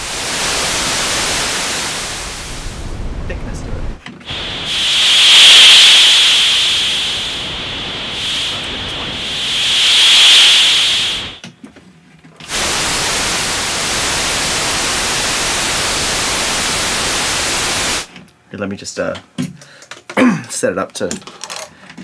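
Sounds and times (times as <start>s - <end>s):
hiss with high whistly band: 0.0s - 2.8s, 4.3s - 11.5s, 12.5s - 18.1s
steady white noise hiss: 0.0s - 11.5s, 12.5s - 18.2s.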